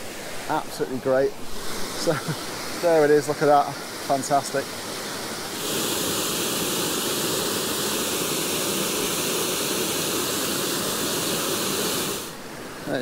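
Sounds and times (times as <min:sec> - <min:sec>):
small waterfall rushing: 0:00.0 - 0:13.0.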